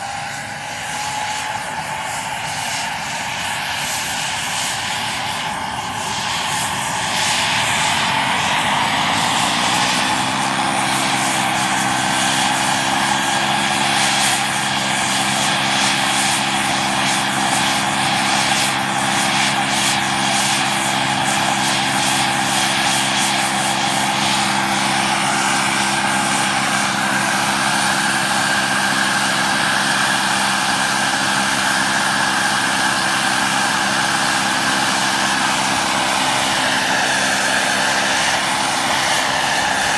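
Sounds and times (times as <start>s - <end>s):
model helicopter drive whine: 0.0s - 39.9s
rotor whoosh: 23.2s - 39.9s.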